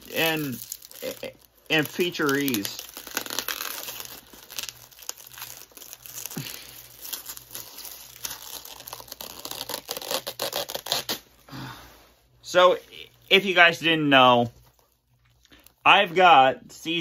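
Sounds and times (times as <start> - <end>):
packaging crinkling: 0.0 - 11.2.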